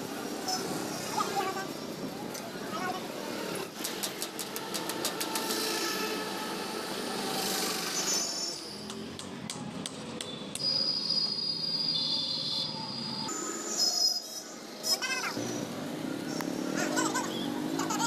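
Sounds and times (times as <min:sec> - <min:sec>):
street traffic noise: 0:00.0 - 0:18.0
high-pitched whine: 0:10.6 - 0:16.5.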